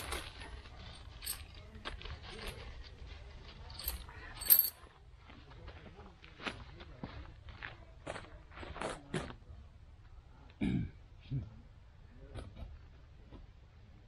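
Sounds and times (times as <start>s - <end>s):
gear rustling and knocking: 0.0s - 2.6s, 3.7s - 4.8s
small metallic clinks: 0.8s - 1.6s, 3.7s - 4.8s.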